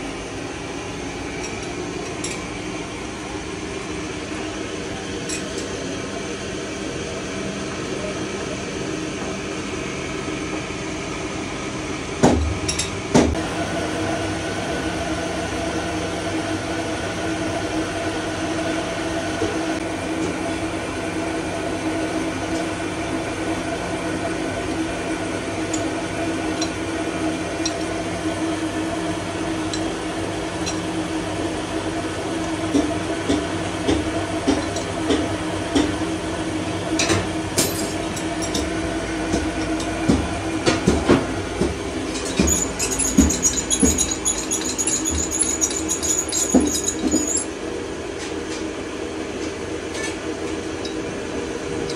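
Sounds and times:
metal lathe humming and whining: 41.8 - 47.7.

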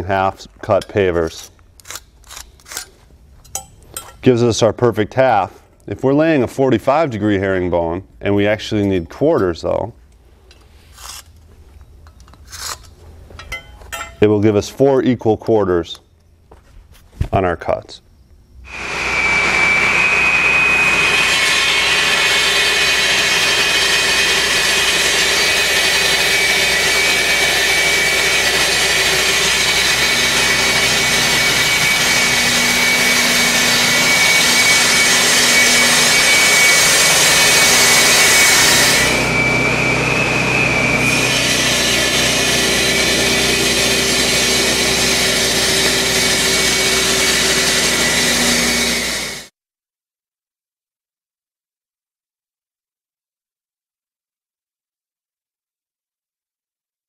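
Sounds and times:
saw blade grinding brick: 0.6 - 4.3, 10.8 - 11.4, 12.2 - 14.3, 18.7 - 49.5
saw motor whine: 18.7 - 49.5.

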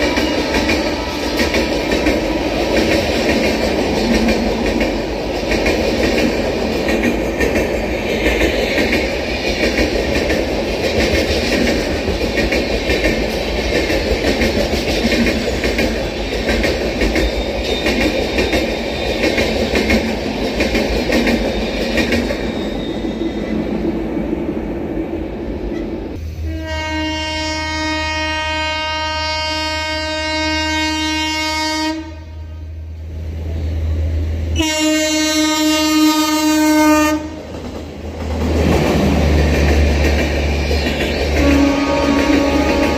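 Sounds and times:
train horn blast: 0.0 - 1.7, 26.4 - 32.8, 34.6 - 37.4, 41.4 - 42.9
train wheels clattering on rails: 0.0 - 24.0, 36.8 - 42.9.

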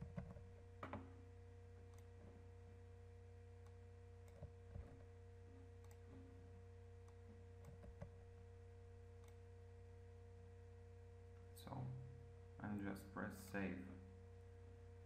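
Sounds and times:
low electrical hum: 0.0 - 15.0
computer mouse clicks: 1.8 - 2.3, 3.6 - 5.1, 5.8 - 6.2, 7.0 - 8.2, 9.2 - 9.4.

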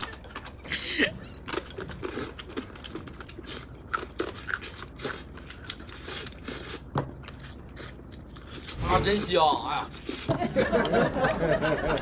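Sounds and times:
chewing and biting: 0.0 - 8.8.

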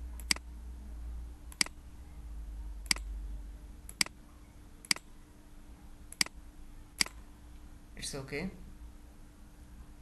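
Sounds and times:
faint steady hum: 0.0 - 10.0
computer mouse clicks: 0.2 - 0.5, 1.5 - 1.8, 2.8 - 3.1, 3.9 - 4.2, 4.8 - 5.1, 6.1 - 6.4, 7.0 - 7.2.

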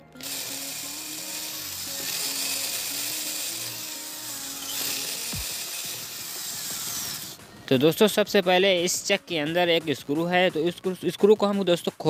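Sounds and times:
drill motor whining: 0.0 - 7.4.

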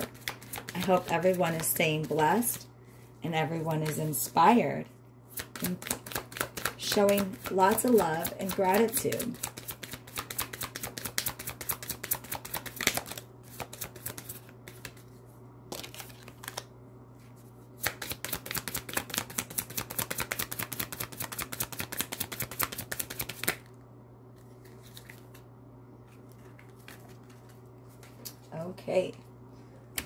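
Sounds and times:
cards being shuffled: 0.0 - 1.7, 5.3 - 23.7, 24.4 - 25.5, 26.1 - 28.5
low steady hum: 0.0 - 30.0.

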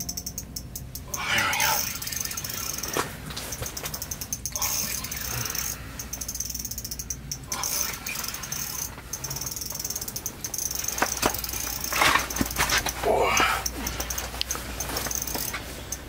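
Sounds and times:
fishing reel gears clicking: 0.0 - 16.0.

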